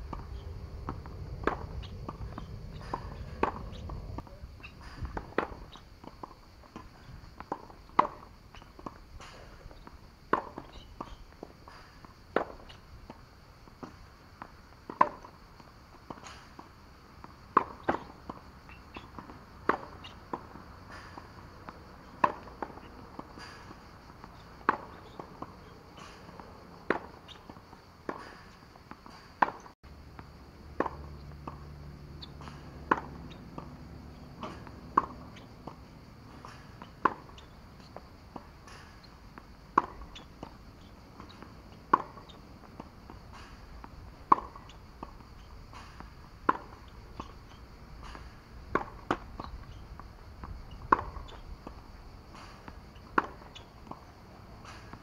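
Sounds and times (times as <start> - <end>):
racket striking tennis ball: 0.0 - 14.0, 14.8 - 29.8, 30.7 - 55.0
ball bouncing on hard court: 0.1 - 4.3, 30.8 - 31.6, 32.2 - 37.9.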